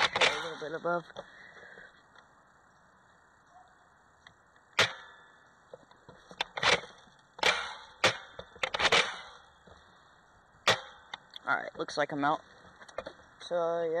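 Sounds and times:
toy airsoft rifle shots: 0.0s - 0.6s, 4.8s - 5.2s, 6.5s - 9.4s, 10.6s - 11.0s.

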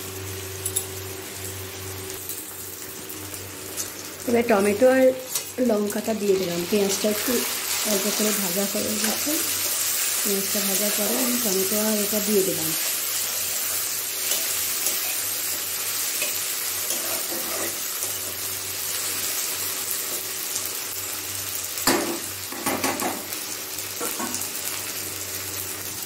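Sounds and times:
vegetables sizzling in hot oil: 0.0s - 26.0s
metal spatula scraping a pan: 14.2s - 18.3s.

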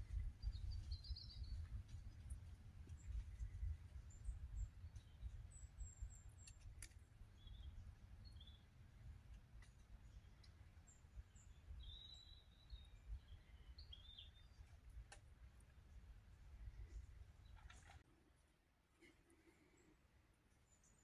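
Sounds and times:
faint small bird chirps: 0.1s - 15.2s, 16.6s - 18.0s.

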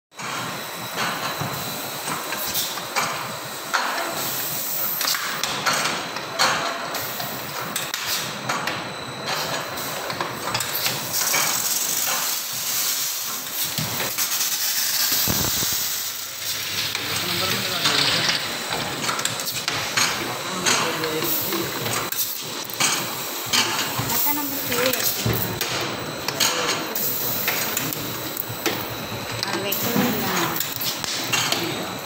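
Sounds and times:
bottles clanking in machine: 0.2s - 32.0s
filling machine hissing: 10.7s - 18.7s, 19.3s - 26.1s, 26.9s - 32.0s.

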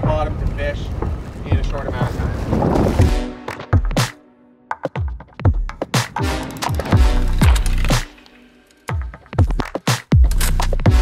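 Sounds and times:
electronic music with kick drum: 3.0s - 11.0s.

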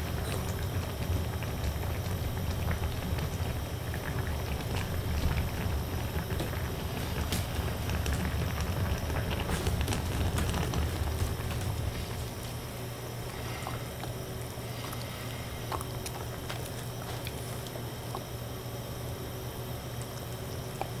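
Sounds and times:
gas burner rumbling: 0.0s - 21.0s
light bubbling ticks: 13.6s - 18.4s, 19.9s - 21.0s.

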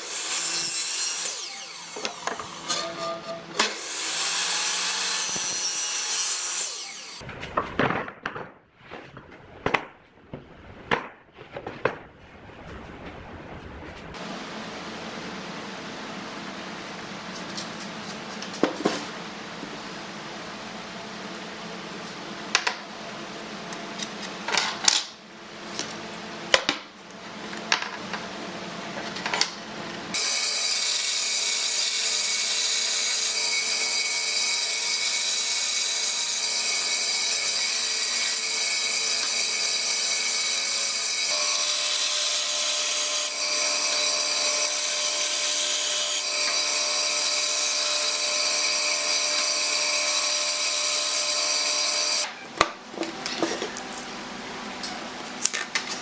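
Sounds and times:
band saw cutting wood: 0.0s - 7.2s, 30.1s - 52.3s.

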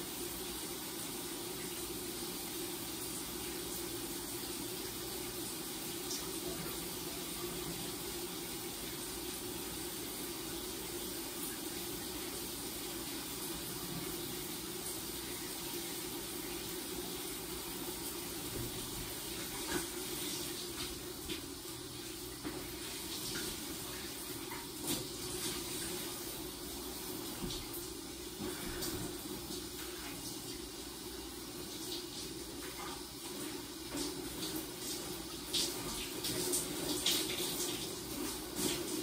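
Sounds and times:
shower water spray: 31.7s - 39.0s.

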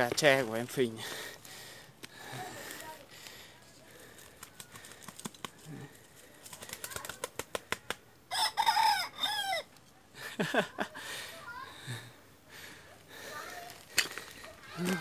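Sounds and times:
rooster crowing: 8.3s - 9.7s.

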